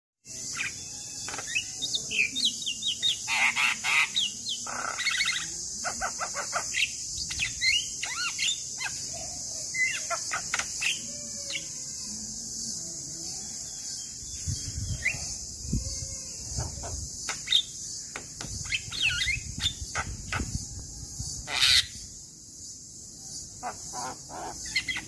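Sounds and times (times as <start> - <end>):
bird whistling and chattering: 0.5 - 9.0, 18.6 - 20.6, 23.7 - 25.0.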